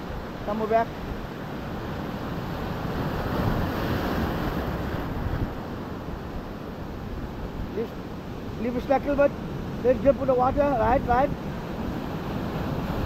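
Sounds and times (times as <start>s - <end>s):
ocean surf breaking: 0.0s - 13.0s.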